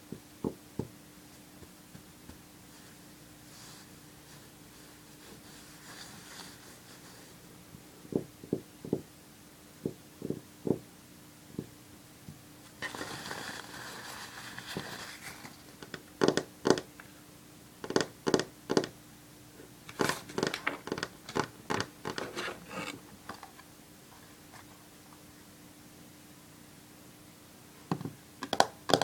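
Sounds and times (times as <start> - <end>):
paper rustling: 12.8 - 15.7
fingernails tapping on paper towel: 15.8 - 16.9
fingernails clicking on wooden table: 17.9 - 18.9, 19.9 - 22.4.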